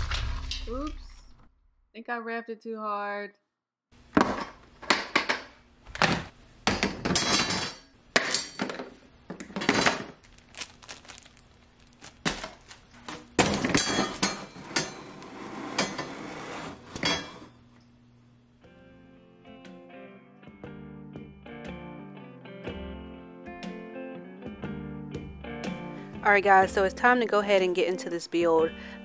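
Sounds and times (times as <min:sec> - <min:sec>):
tools knocking and clattering: 0:04.2 - 0:10.1.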